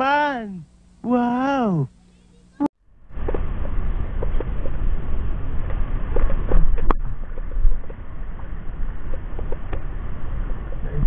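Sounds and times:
wind rumble: 2.9s - 11.0s.

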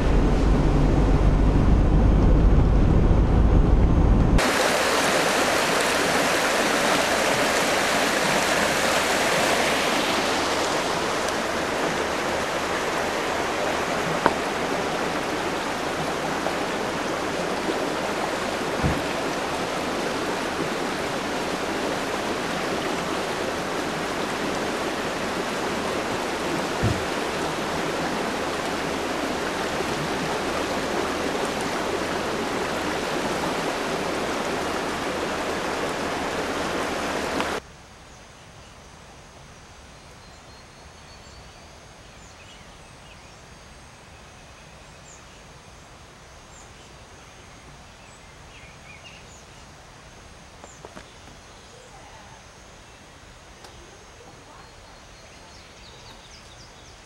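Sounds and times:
river rushing over rocks: 4.3s - 37.6s.

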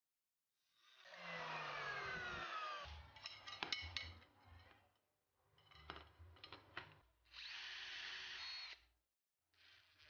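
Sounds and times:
power drill running: 0.9s - 2.9s, 7.3s - 8.8s.

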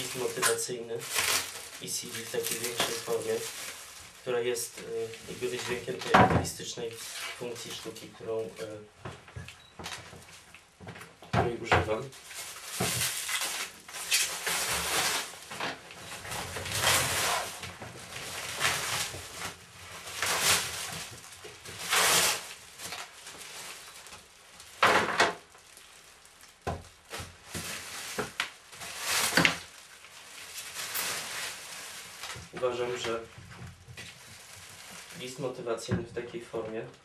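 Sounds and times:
plastic sheeting crinkling: 0.0s - 37.0s.

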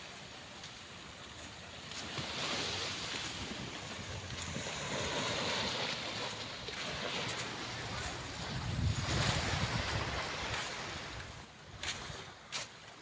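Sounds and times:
small waves breaking on beach: 0.0s - 13.0s
wind buffeting microphone: 6.7s - 12.0s.

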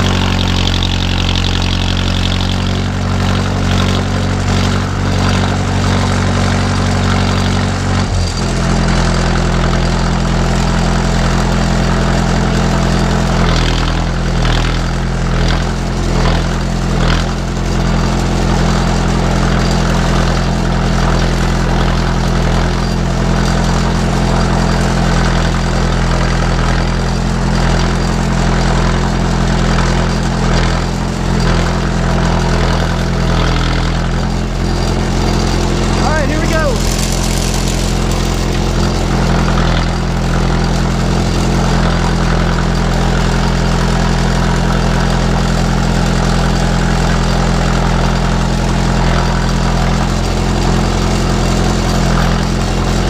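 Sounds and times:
tractor engine running: 0.0s - 53.0s
clattering rattles: 34.2s - 41.5s.

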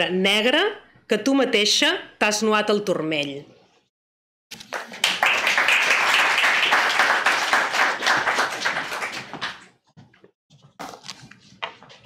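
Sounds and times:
audience applauding: 4.6s - 9.7s.

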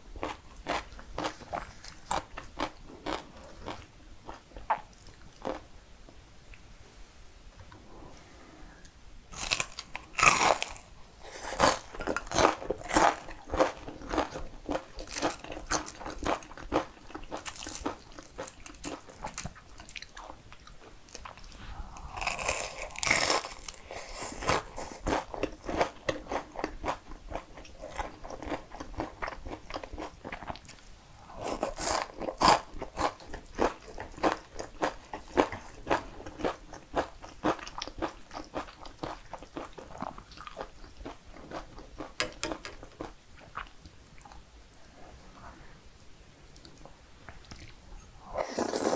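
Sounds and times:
crunching bites and chewing: 9.3s - 21.4s, 22.2s - 30.7s
slurping spaghetti: 48.3s - 48.9s.

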